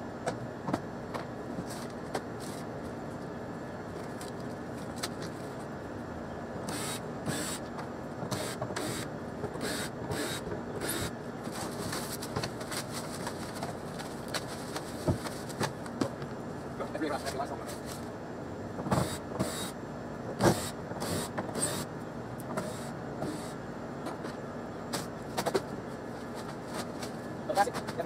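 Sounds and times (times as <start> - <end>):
steady background hum: 0.0 - 28.0
plastic sheeting rustling: 11.5 - 15.6.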